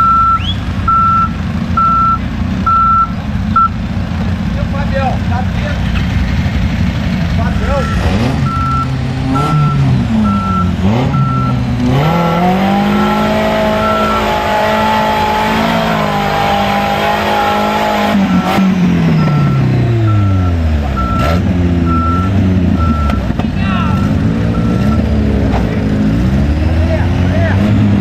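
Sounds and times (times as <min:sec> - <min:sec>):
reversing alarm beeps: 0:00.0 - 0:03.8, 0:07.6 - 0:11.6, 0:12.3 - 0:14.5, 0:17.6 - 0:23.2, 0:23.9 - 0:25.1
diesel engine revving: 0:00.0 - 0:28.0.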